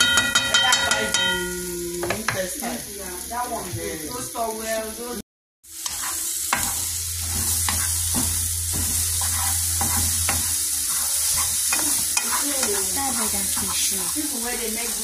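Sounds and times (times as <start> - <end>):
food sizzling in a frying pan: 0.0 - 15.0
wooden spoon scraping a pan: 5.8 - 15.0.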